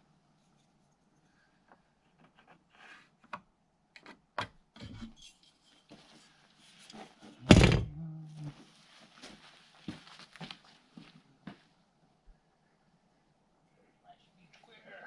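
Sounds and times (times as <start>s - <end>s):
wood rubbing and scraping: 2.0s - 3.4s.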